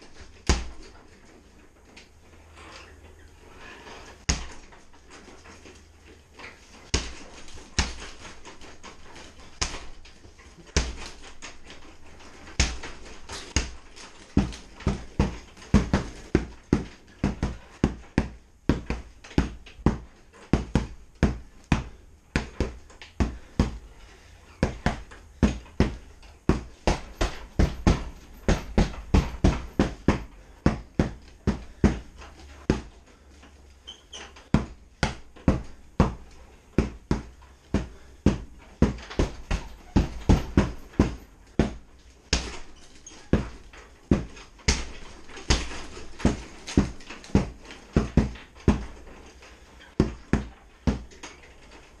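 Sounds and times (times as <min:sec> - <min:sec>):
tomahawk striking punching bag: 0:24.6 - 0:33.0, 0:34.6 - 0:42.7, 0:50.0 - 0:51.2.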